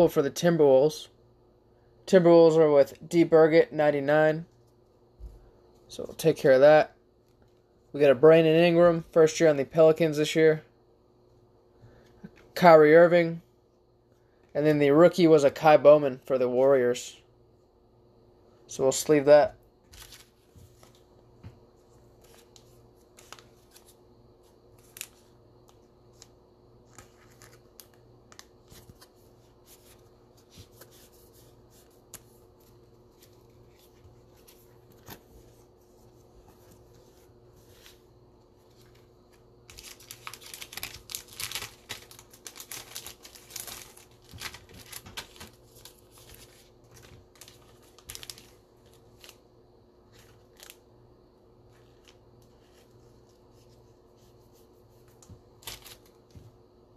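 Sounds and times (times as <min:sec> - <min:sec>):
plastic sleeves crinkling: 0:19.8 - 0:21.2, 0:21.8 - 0:50.9, 0:51.6 - 0:56.4.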